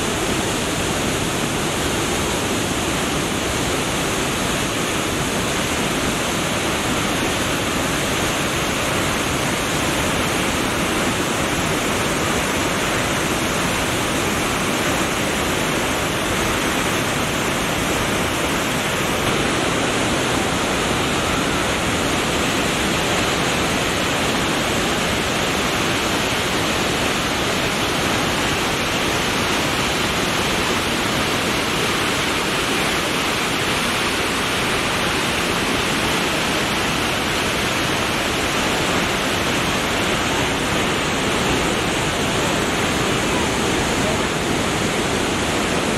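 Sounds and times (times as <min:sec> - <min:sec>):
waterfall rushing: 0:00.0 - 0:45.9.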